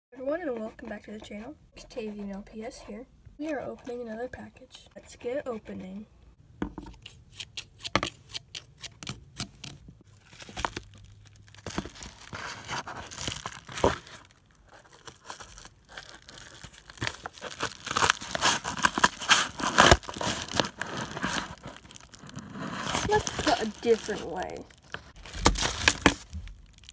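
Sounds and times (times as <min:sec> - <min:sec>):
paper rustling and crinkling: 0:10.1 - 0:26.9
paper tearing: 0:14.9 - 0:26.9.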